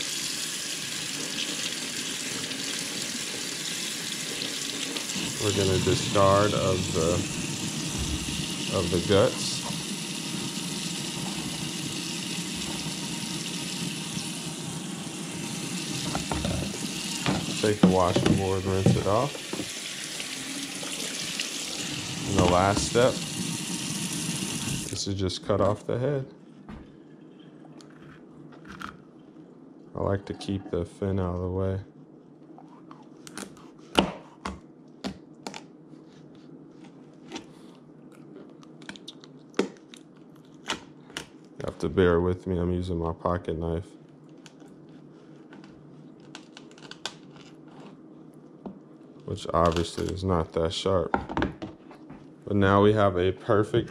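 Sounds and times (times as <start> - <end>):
faucet running into steel sink: 0.0 - 25.0.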